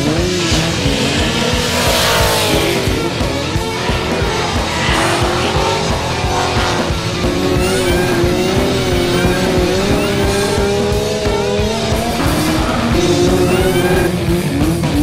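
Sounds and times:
motorcycle and car engines revving: 0:00.0 - 0:15.0
music with steady beat: 0:00.6 - 0:15.0
tyres squealing: 0:02.6 - 0:14.4.

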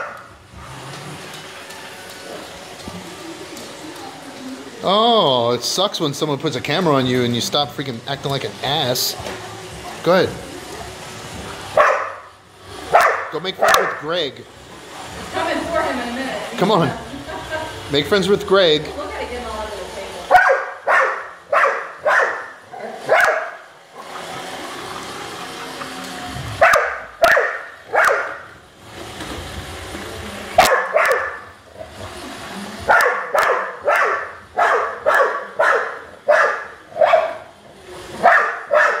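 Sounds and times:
dog barking: 0:00.0 - 0:00.3, 0:11.8 - 0:12.3, 0:12.9 - 0:14.0, 0:20.3 - 0:23.7, 0:26.6 - 0:28.5, 0:30.6 - 0:31.5, 0:32.9 - 0:37.5, 0:38.2 - 0:39.0
robot vacuum humming: 0:00.0 - 0:39.0.

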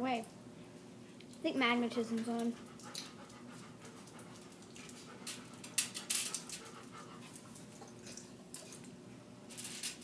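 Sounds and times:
wet chewing and lip-smacking: 0:02.4 - 0:08.9.

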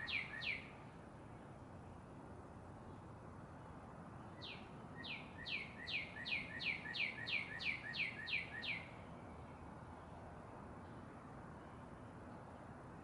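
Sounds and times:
bird singing whistled notes: 0:00.0 - 0:00.8, 0:04.3 - 0:09.0
steady background hiss: 0:00.0 - 0:13.0.

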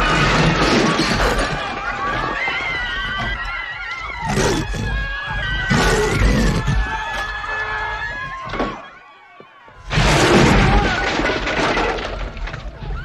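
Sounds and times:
crowd screaming in panic: 0:00.0 - 0:13.0
tableware crashing and breaking: 0:09.9 - 0:12.8.

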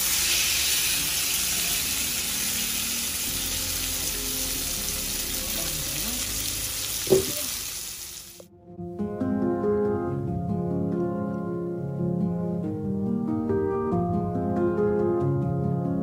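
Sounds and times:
fish sizzling in a pan: 0:00.0 - 0:08.5.

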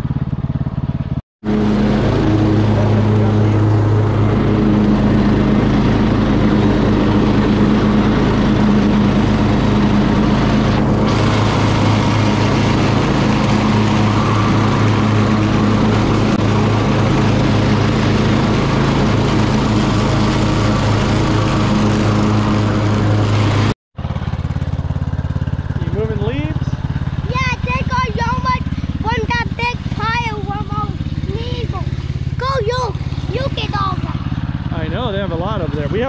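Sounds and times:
mower cutting deck noise: 0:00.0 - 0:36.0
riding lawn mower engine drone: 0:00.0 - 0:36.0.

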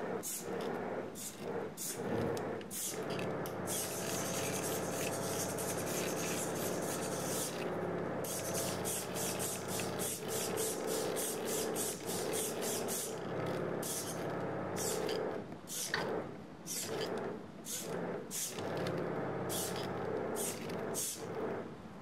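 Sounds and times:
steady pump hum: 0:00.0 - 0:22.0
pulsing hydraulic hiss: 0:08.3 - 0:13.2, 0:13.8 - 0:14.2, 0:15.7 - 0:16.0, 0:19.5 - 0:21.3.

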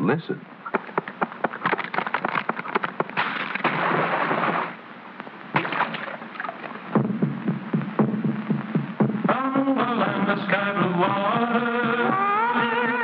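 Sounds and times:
tree falling crash: 0:03.1 - 0:04.8
music with low drumbeat: 0:06.9 - 0:13.0.

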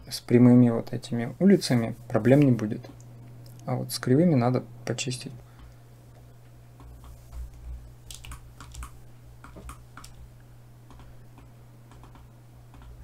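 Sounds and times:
low electrical hum: 0:00.0 - 0:13.0
keyboard and mouse clicks: 0:06.8 - 0:10.2, 0:10.9 - 0:13.0.

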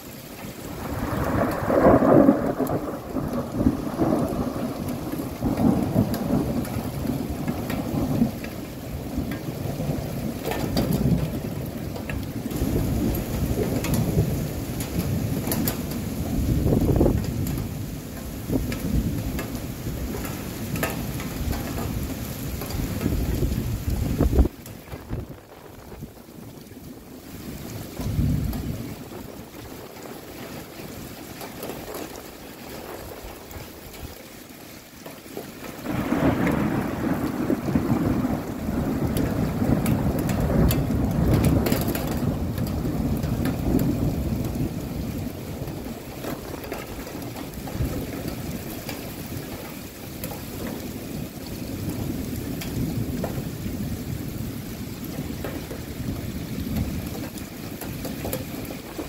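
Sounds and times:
rain falling: 0:00.0 - 0:59.0
thunder rolling: 0:00.6 - 0:31.0, 0:35.6 - 0:59.0.

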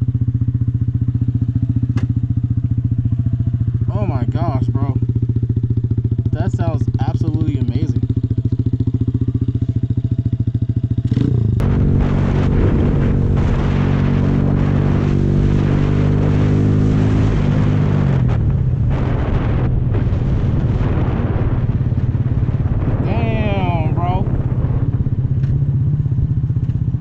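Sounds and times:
motorcycle engine idling and revving: 0:00.0 - 0:27.0
wind noise on microphone: 0:11.1 - 0:27.0.

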